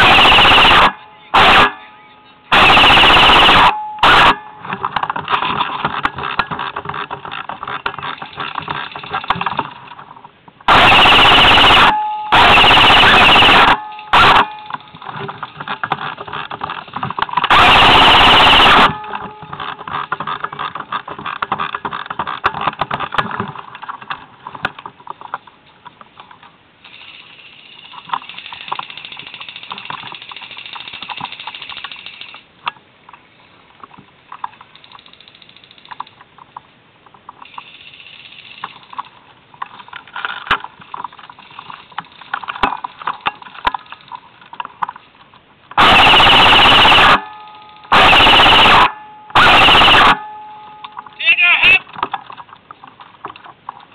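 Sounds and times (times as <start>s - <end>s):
airsoft rifle firing bursts: 0.0s - 1.7s, 2.5s - 4.4s, 10.7s - 14.5s, 17.5s - 19.2s, 45.8s - 47.3s, 47.9s - 50.3s.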